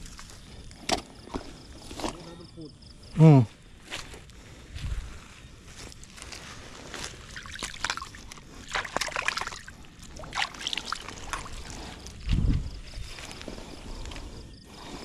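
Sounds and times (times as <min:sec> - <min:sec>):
water sloshing and splashing: 0:07.0 - 0:12.4.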